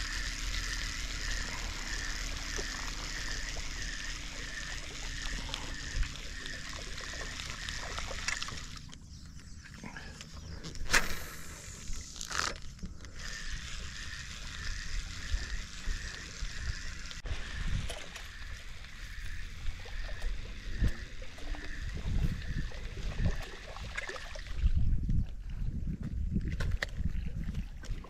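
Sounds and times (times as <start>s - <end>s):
steady hiss with pulse: 0.0s - 8.3s, 10.8s - 12.4s
water lapping around boat: 0.0s - 10.8s, 12.3s - 25.7s, 26.5s - 28.0s.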